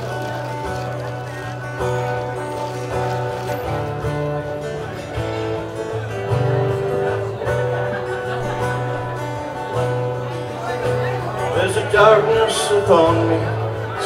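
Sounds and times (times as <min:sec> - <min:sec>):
acoustic guitar strumming: 0:00.0 - 0:14.0
person singing: 0:10.8 - 0:14.0.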